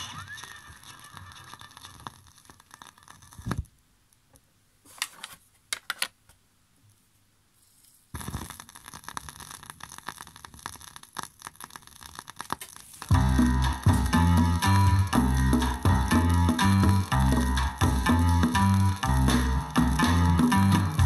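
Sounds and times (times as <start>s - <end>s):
vinyl record crackle: 0.0s - 4.3s, 7.8s - 21.0s.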